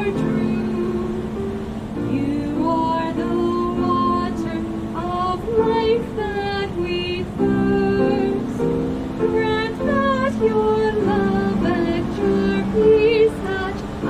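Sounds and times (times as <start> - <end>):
sustained accompanying chords: 0.0 - 14.0
woman singing a hymn: 0.0 - 14.0.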